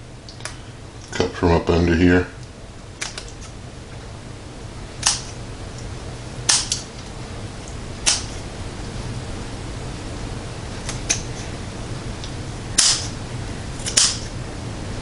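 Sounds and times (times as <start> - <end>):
scissors snipping netting: 3.0 - 3.6, 5.0 - 5.4, 6.5 - 6.9, 8.0 - 8.4, 10.8 - 11.4, 12.8 - 13.2, 13.8 - 14.3.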